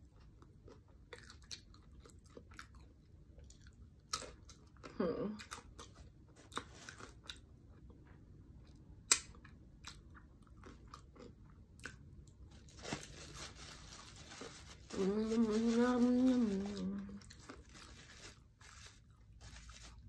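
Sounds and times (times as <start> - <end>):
chewing and crunching: 0.0 - 14.9, 16.3 - 20.0
person humming mmm: 4.9 - 5.4, 14.9 - 17.2.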